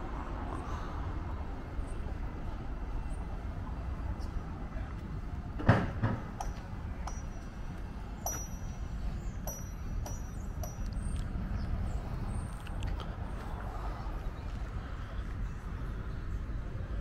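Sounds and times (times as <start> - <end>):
outdoor rumble: 0.0 - 17.0
thump: 5.6 - 6.3
light ringing clicks: 6.4 - 11.3.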